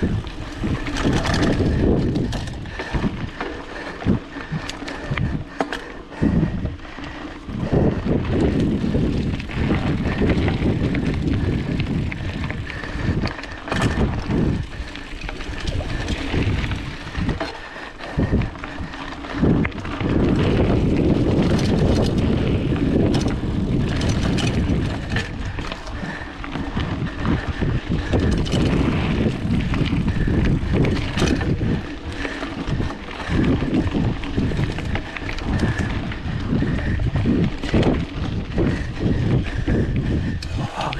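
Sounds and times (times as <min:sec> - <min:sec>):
bike rattling over rough ground: 0:00.0 - 0:40.9
wind buffeting microphone: 0:00.0 - 0:40.9.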